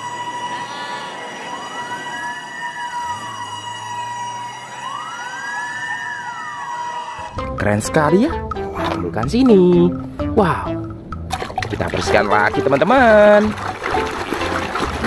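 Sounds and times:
fire truck siren wailing: 0.0s - 7.4s.

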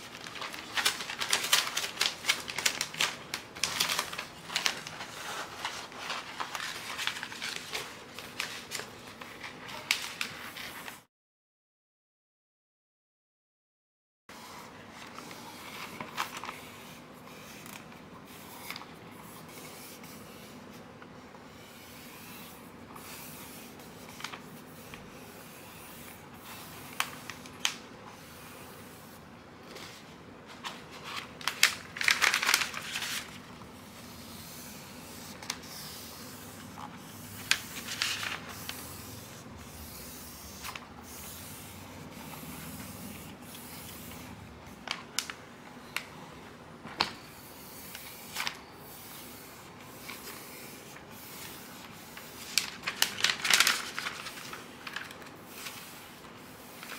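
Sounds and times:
vinyl sheet crinkling and rustling: 0.0s - 11.0s, 14.8s - 16.8s, 23.7s - 25.5s, 26.1s - 28.0s, 29.6s - 46.1s, 47.9s - 48.7s, 49.9s - 56.9s.

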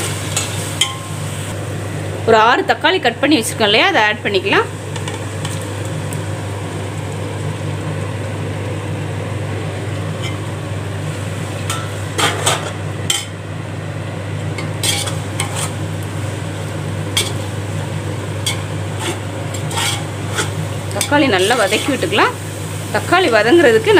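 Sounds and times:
steady low hum: 0.0s - 23.9s
metal skimmer scraping metal pot: 14.7s - 15.8s, 18.4s - 22.2s.

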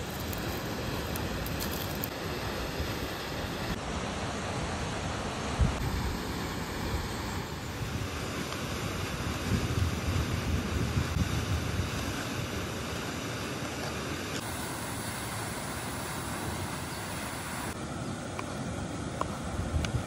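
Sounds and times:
wind buffeting microphone: 7.7s - 12.6s
waterfall rushing: 12.6s - 17.8s.

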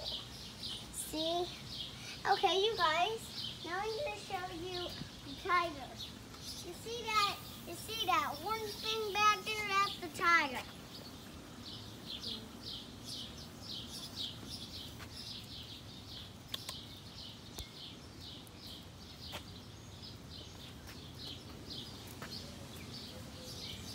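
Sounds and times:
bird chirping: 0.0s - 23.9s
faint clicks: 16.4s - 17.8s.

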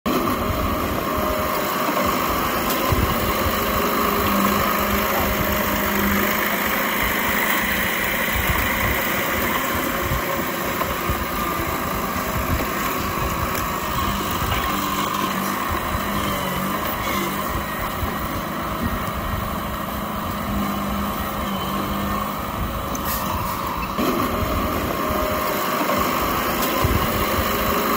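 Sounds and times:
bulldozer diesel engine running: 0.1s - 27.9s.

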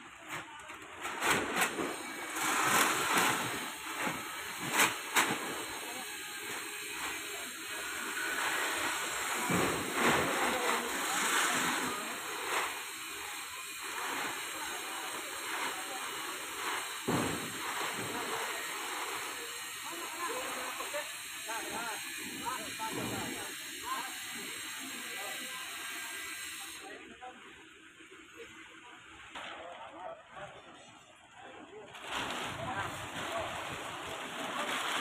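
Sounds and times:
foil wrapping crinkling: 32.0s - 35.0s.

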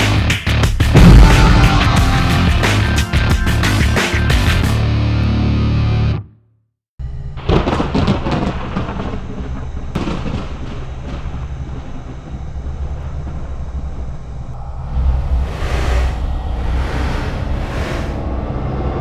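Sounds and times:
hard-driving intro music: 0.0s - 6.2s
thunder cracks: 0.9s - 2.9s, 7.4s - 18.2s
rain and wind rumble: 7.5s - 17.4s.

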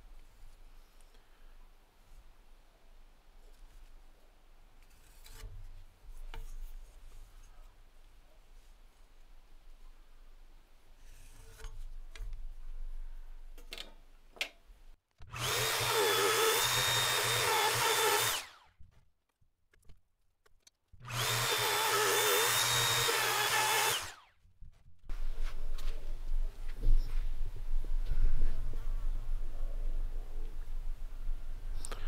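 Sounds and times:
power tool whining: 15.2s - 18.7s, 21.0s - 24.3s.

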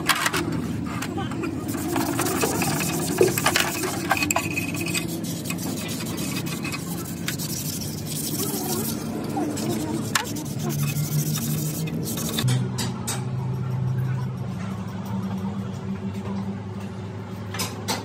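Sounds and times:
scraping on metal: 0.0s - 12.5s.

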